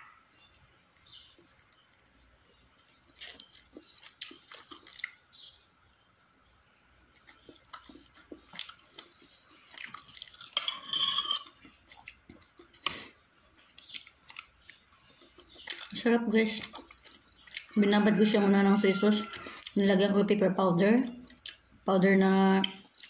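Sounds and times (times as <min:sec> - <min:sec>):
chewing: 0:00.0 - 0:06.2, 0:07.0 - 0:19.9, 0:21.0 - 0:21.8, 0:22.6 - 0:23.0
cutlery clinking on a plate: 0:10.4 - 0:11.6.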